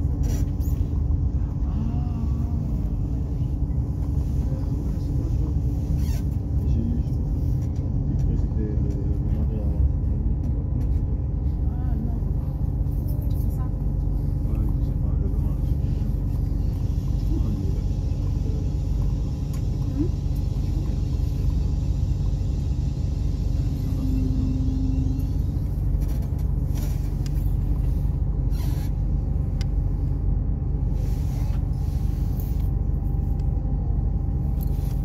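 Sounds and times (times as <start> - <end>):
railcar rumble from inside: 0.0 - 35.0
brief tone: 23.6 - 25.7.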